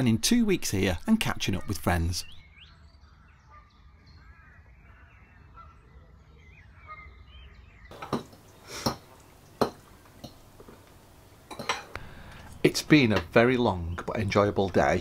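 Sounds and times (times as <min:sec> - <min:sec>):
birds chirping: 0:00.0 - 0:15.0
cutlery and dishes clinking: 0:07.9 - 0:12.0.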